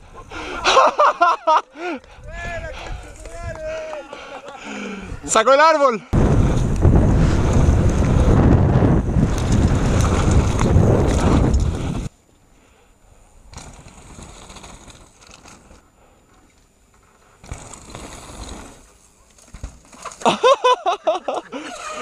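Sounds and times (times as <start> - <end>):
wind buffeting microphone: 2.1 - 3.8, 6.2 - 12.1.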